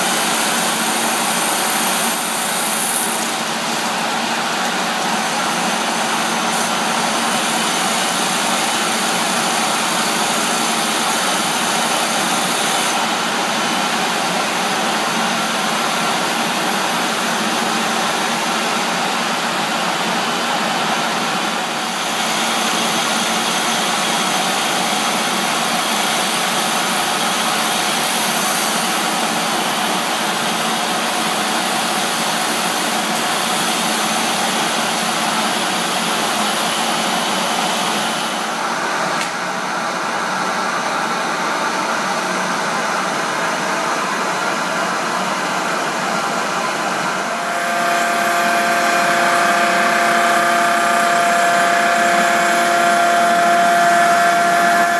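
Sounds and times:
wood lathe hissing: 0.0s - 19.1s, 46.5s - 54.9s
motor whine: 47.0s - 54.9s.

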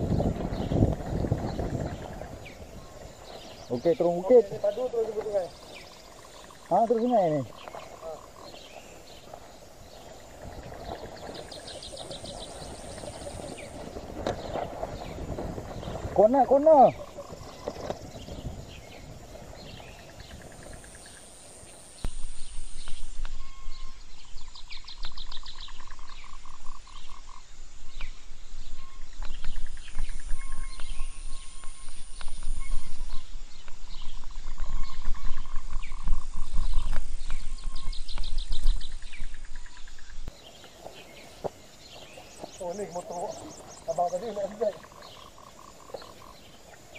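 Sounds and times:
bike rumbling and rattling: 0.0s - 21.4s, 29.0s - 46.9s
animal chirps and trills: 42.2s - 46.9s.

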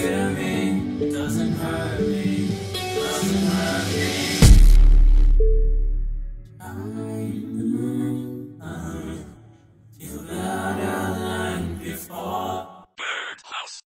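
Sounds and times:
wordless vocal harmonies: 0.0s - 4.9s, 6.5s - 13.9s.

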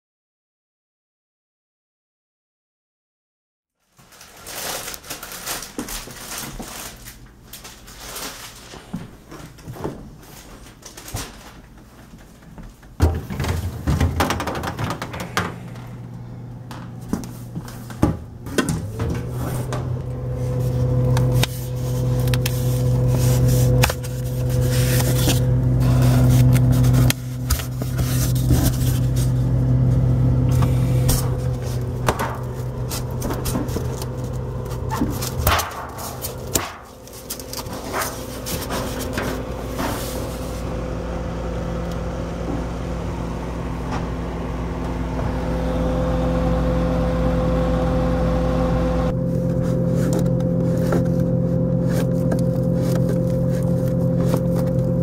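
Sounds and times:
refrigerator humming: 3.9s - 55.0s
plastic drawers clicking and scraping: 12.9s - 16.0s, 16.8s - 40.6s, 49.4s - 55.0s.

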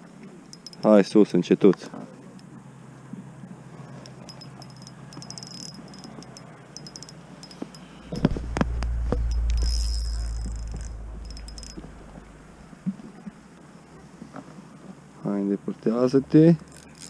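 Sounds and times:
fishing reel clicking: 0.5s - 0.9s, 4.0s - 7.9s, 9.6s - 11.8s, 16.7s - 17.0s
low rumble on microphone: 7.6s - 13.3s.

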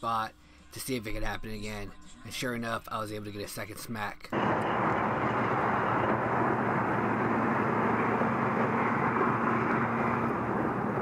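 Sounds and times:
faint low engine drone: 4.3s - 11.0s
rushing traffic noise: 4.4s - 11.0s.

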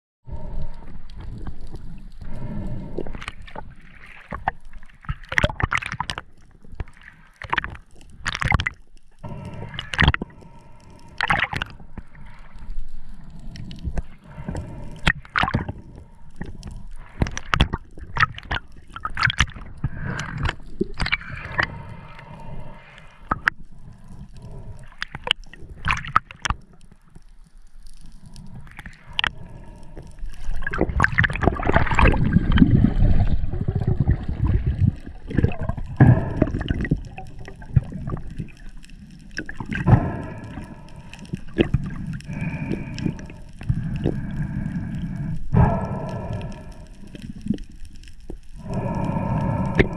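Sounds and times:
gurgling water hiss: 0.3s - 49.9s
rush of bubbles: 2.3s - 10.3s, 11.1s - 12.6s, 13.9s - 26.6s, 28.5s - 47.7s
underwater clicks and knocks: 6.8s - 8.8s, 16.4s - 21.7s.

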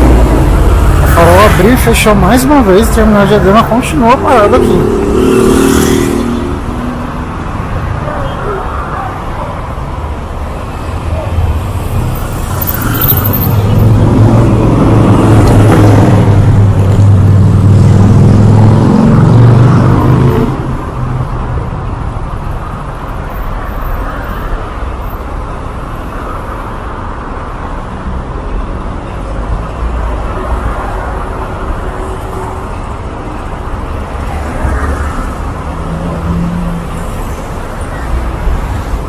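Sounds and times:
large vehicle engine droning: 0.0s - 7.7s
street traffic hum: 0.0s - 39.0s.

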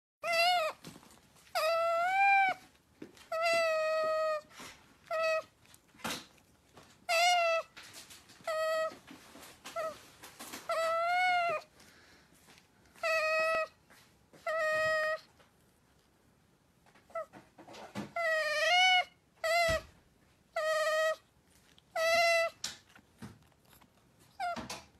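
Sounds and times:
otter squeaking: 21.9s - 24.9s.

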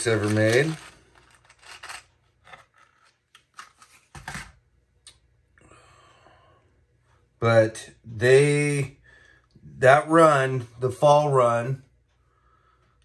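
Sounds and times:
fishing tackle clicking and rustling: 0.0s - 4.5s.

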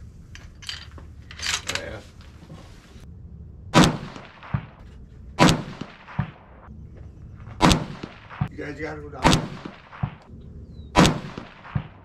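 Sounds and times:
rifle shots with ringing tail: 3.7s - 4.8s, 5.4s - 6.7s, 7.4s - 12.0s.

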